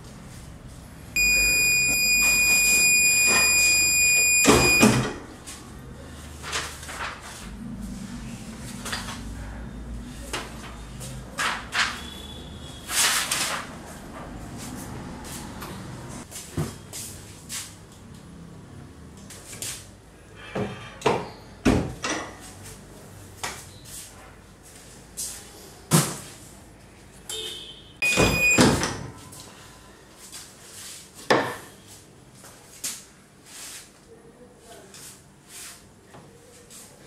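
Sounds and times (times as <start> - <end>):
short high tone: 1.2 - 4.9.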